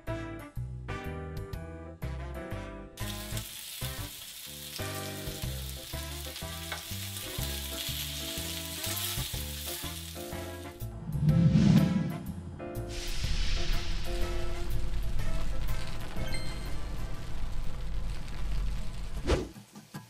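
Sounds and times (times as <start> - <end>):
meat sizzling in a pan: 3.0 - 10.8.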